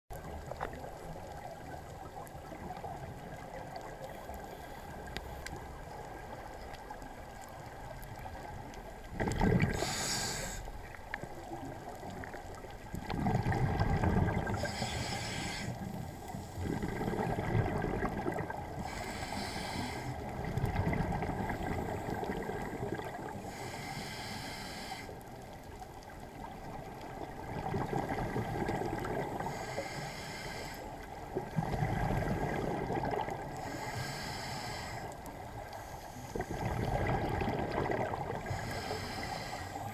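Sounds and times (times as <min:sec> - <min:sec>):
muffled low underwater noise: 0:00.1 - 0:39.9
exhaled bubbles bursting underwater: 0:07.8 - 0:10.1, 0:11.4 - 0:14.7, 0:16.6 - 0:18.9, 0:20.2 - 0:23.4, 0:26.4 - 0:29.4, 0:31.2 - 0:33.6, 0:36.3 - 0:38.6.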